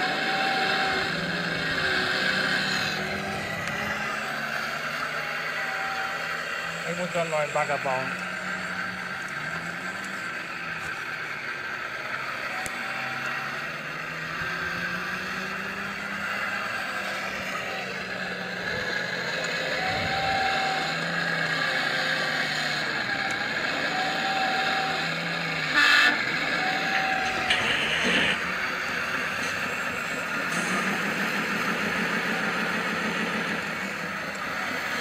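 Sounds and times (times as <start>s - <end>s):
model excavator pump whine: 0.0s - 35.0s
loud burst of noise: 25.7s - 34.0s.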